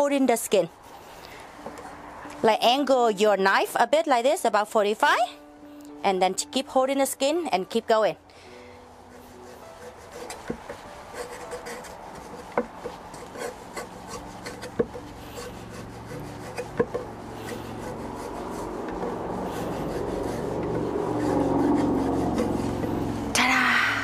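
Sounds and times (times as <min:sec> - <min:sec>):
knife rasping through fat: 0:09.1 - 0:23.5
low steady rumble: 0:13.7 - 0:24.0.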